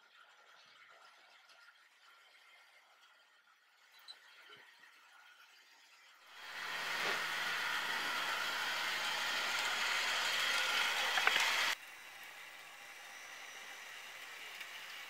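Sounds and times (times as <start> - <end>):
model train motor whirring: 6.3 - 15.0.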